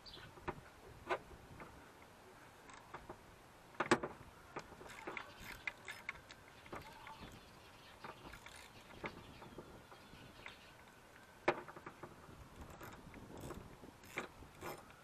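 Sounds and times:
hand tool and plastic clips clicking: 3.8 - 7.2, 10.4 - 15.0.

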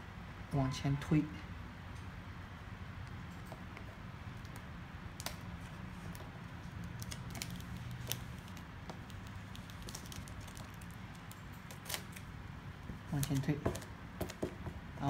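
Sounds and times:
plastic film crackling: 4.3 - 14.5.

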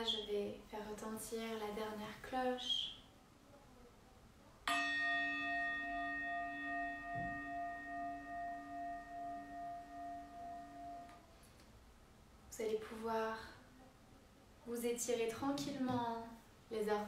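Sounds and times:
singing bowl ringing: 4.7 - 11.4.

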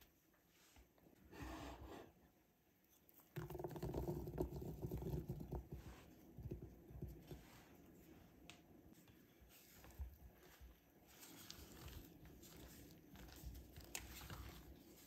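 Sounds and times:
blueberries pattering into batter: 3.2 - 7.3.

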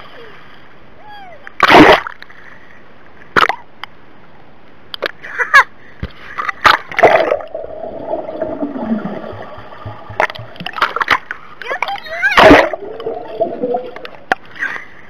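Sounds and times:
sharp water splashes: 1.6 - 2.2, 6.6 - 14.6.

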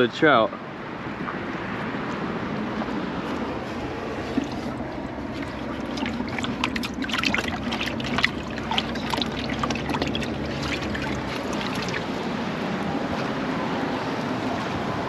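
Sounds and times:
water splashing in a plastic bucket: 3.9 - 13.2.

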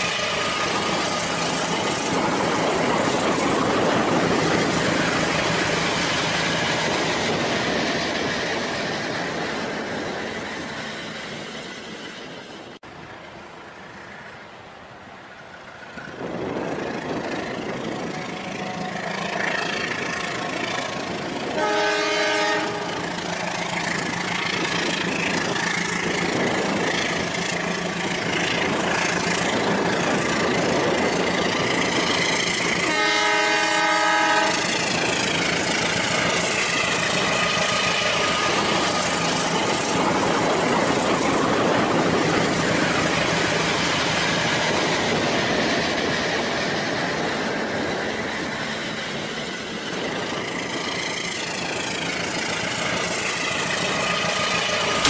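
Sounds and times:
multi-note train horn: 21.5 - 23.2, 32.8 - 34.8.

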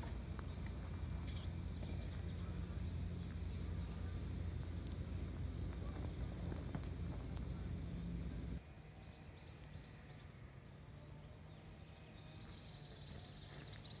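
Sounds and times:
fire crackling and popping: 0.0 - 8.6
outdoor ambience: 0.0 - 14.0.

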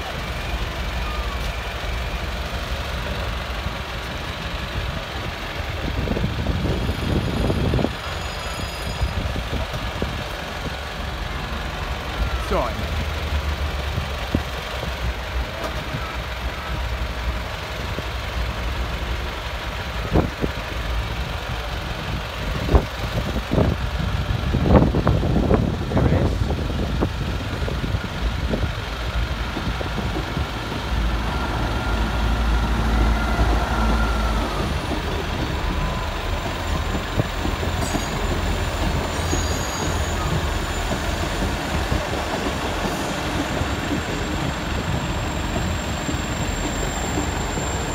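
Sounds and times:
diesel train engines running: 0.0 - 47.9
thin squeal: 8.0 - 9.4, 37.8 - 40.9
train wheels knocking on rail joints: 26.6 - 47.9.

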